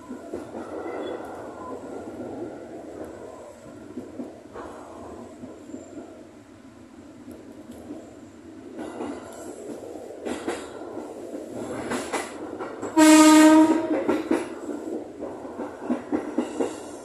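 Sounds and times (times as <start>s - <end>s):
train horn blast: 13.0s - 14.1s.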